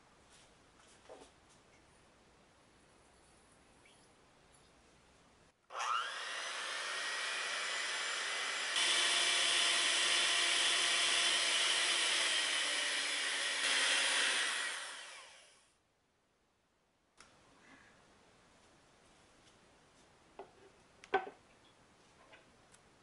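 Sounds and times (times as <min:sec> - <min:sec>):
electric mixer whining: 0:05.7 - 0:15.6.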